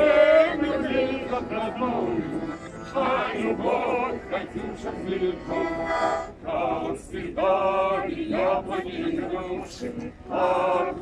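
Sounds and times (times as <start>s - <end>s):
button accordion: 0.0s - 6.8s
group of people singing: 0.0s - 11.0s.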